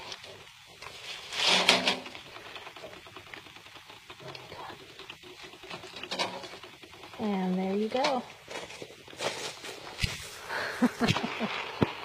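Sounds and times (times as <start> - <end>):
light clicking and scratching: 0.0 - 12.0
loud rustling scrape: 0.8 - 2.9, 8.4 - 10.5.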